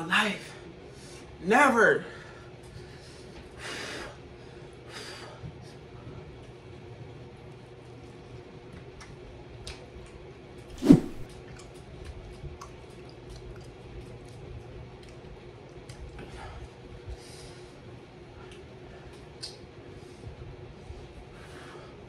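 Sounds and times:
sharp thump: 10.8s - 11.3s.

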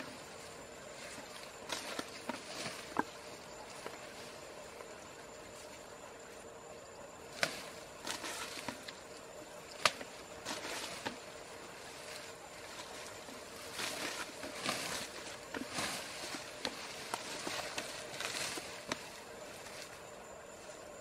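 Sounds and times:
faint steady hum: 0.0s - 21.0s
tall grass rustling: 0.0s - 21.0s
stalks snapping: 1.5s - 3.2s, 7.3s - 9.0s, 9.7s - 11.4s, 13.7s - 19.2s.

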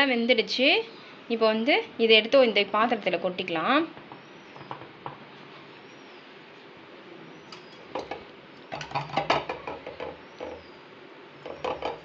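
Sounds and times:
metal plate and bowl clinking: 8.0s - 10.6s.

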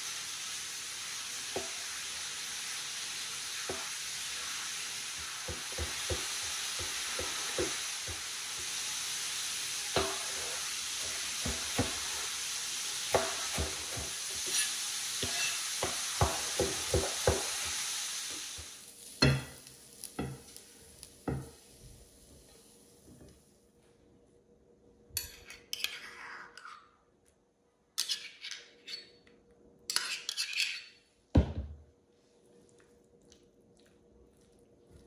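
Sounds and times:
steady hiss: 0.0s - 23.9s
metal spoon scraping metal cup: 25.2s - 26.8s, 28.0s - 29.1s, 29.9s - 31.0s.

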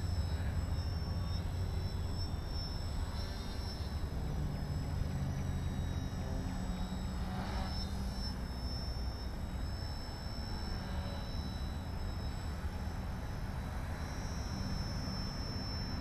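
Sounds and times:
distant model plane motor droning: 0.0s - 16.0s
low steady tone: 0.0s - 16.0s.

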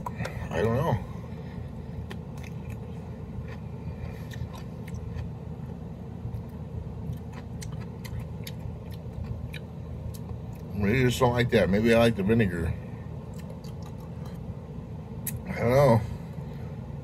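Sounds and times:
low background hum: 0.0s - 17.0s
pickle crunching: 2.0s - 11.0s, 13.2s - 14.5s.

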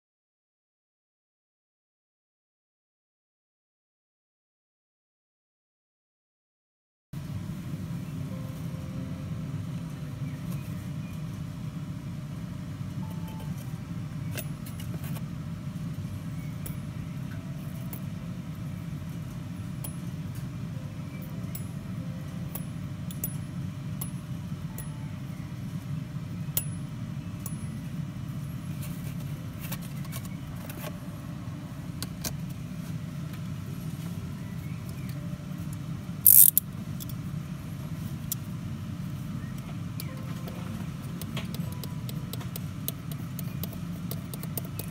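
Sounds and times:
steady low hum: 7.2s - 44.9s
metal clip clicking: 36.3s - 37.2s.

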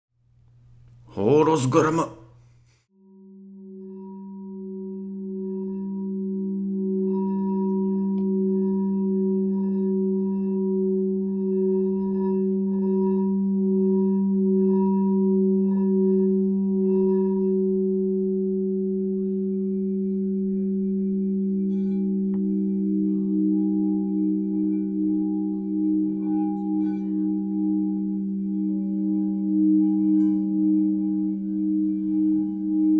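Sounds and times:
singing bowl humming: 3.0s - 32.9s.

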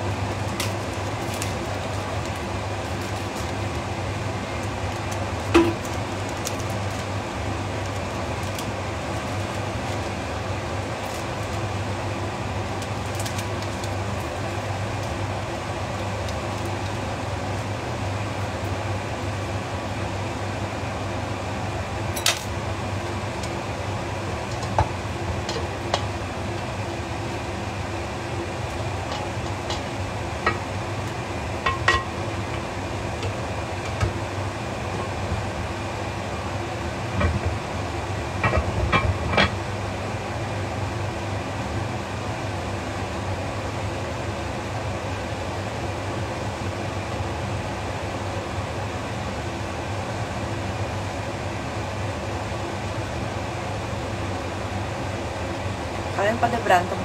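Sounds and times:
range hood fan running: 0.0s - 57.0s
utensils and cookware clinking: 31.7s - 32.2s.

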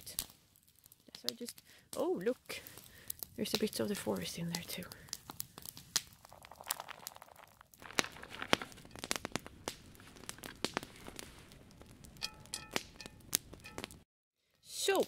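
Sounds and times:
bag rustling: 6.2s - 11.7s
berries clicking into a metal pot: 6.2s - 14.0s.

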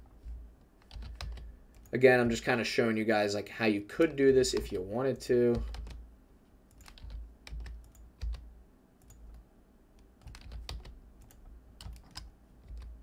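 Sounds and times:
computer keyboard typing: 0.8s - 1.9s, 4.4s - 4.8s, 5.5s - 6.0s, 6.7s - 8.4s, 9.0s - 9.4s, 10.2s - 13.0s.

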